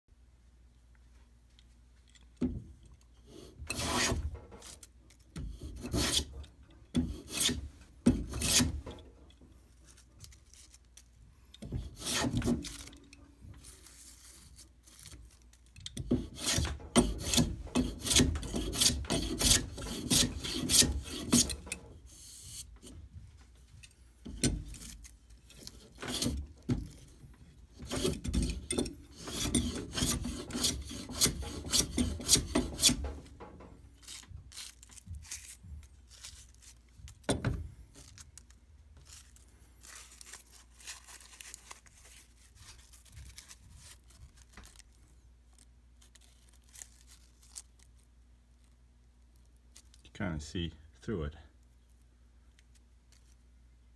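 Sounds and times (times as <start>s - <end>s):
hand plane rasping on wood: 3.3s - 4.2s, 5.5s - 6.4s, 7.0s - 8.8s, 11.8s - 12.6s, 16.1s - 21.7s, 25.8s - 26.5s, 27.8s - 33.2s.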